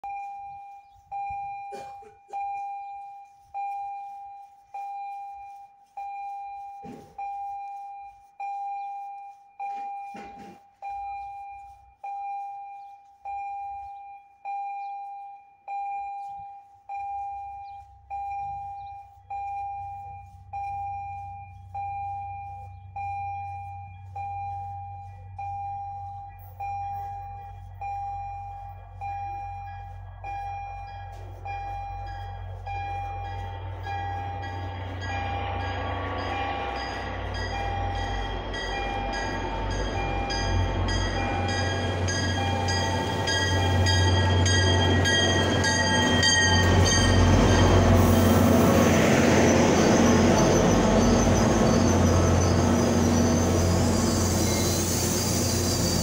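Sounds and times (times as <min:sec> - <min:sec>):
railroad warning bell ringing: 0:00.0 - 0:56.0
low rumble of train: 0:17.1 - 0:56.0.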